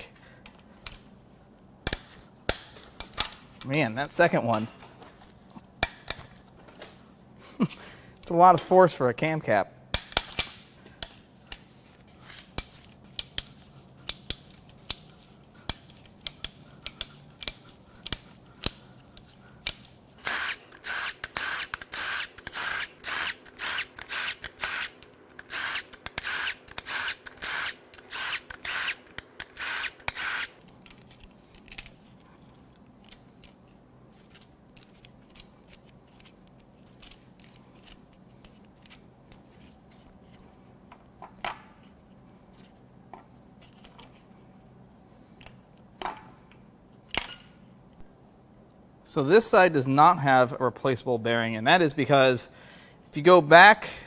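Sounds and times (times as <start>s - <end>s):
metal parts clicking: 13.2s - 39.4s
impact wrench bursts: 20.2s - 30.6s.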